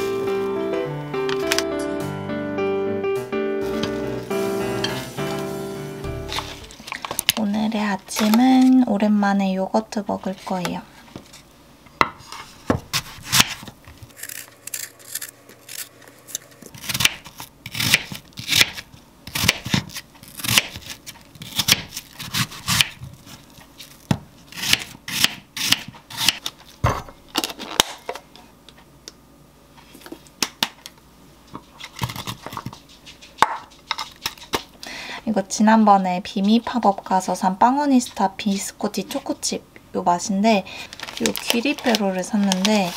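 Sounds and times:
knife cutting apple on board: 16.7s - 23.0s, 24.1s - 26.5s.

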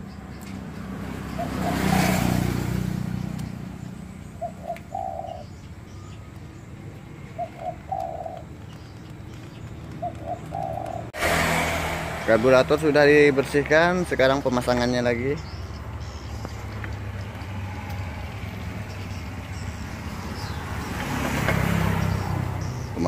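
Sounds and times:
dove cooing: 1.2s - 2.7s, 3.8s - 6.2s, 7.2s - 11.1s.

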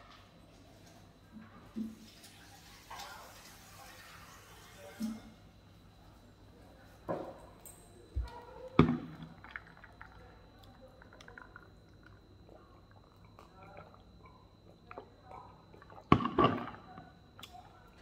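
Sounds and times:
sips and swallows: 9.4s - 16.2s.

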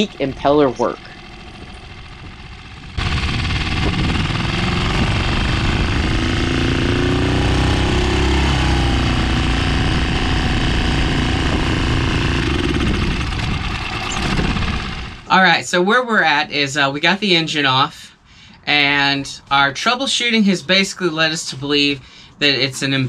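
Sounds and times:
propeller churning water: 0.0s - 15.3s
outboard engine running: 0.0s - 15.4s.

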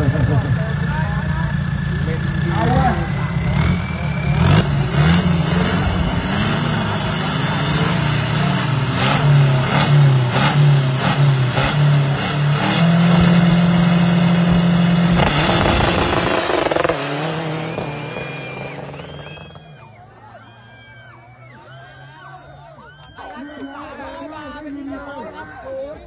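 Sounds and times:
truck engines revving hard: 0.0s - 23.1s
turbo whistle: 2.8s - 13.6s, 15.1s - 23.9s.

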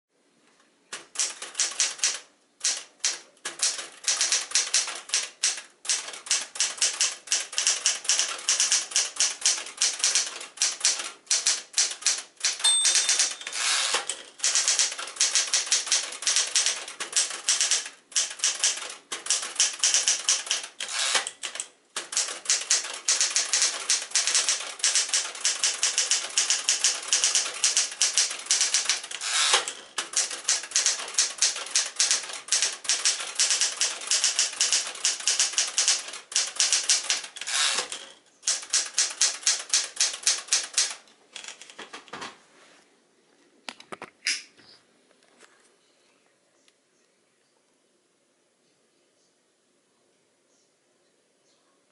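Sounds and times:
typewriter keys clacking: 0.9s - 42.2s.

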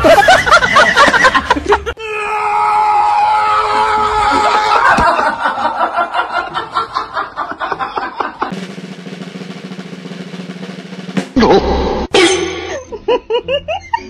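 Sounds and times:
people laughing: 0.0s - 2.0s, 4.0s - 8.6s, 12.6s - 14.0s.

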